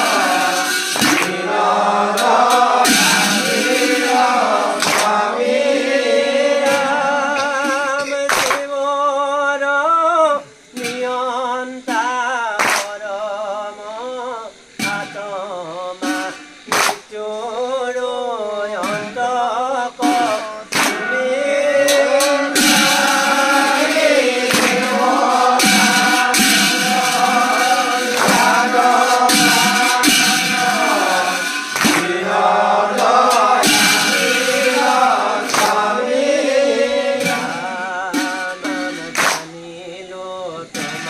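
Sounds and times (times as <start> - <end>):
sharp percussive strikes: 0.0 - 8.8, 11.8 - 13.1, 14.6 - 17.3, 18.7 - 19.3, 19.9 - 39.6, 40.6 - 41.0
voices chanting devotional song: 0.0 - 41.0.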